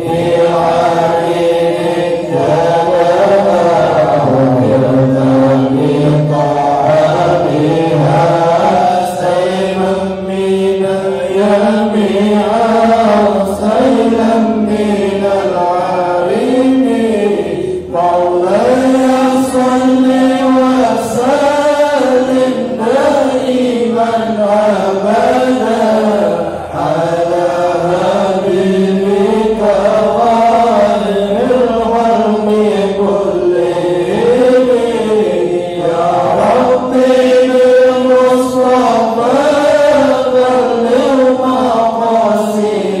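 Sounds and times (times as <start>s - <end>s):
group chanting in unison: 0.0s - 43.0s.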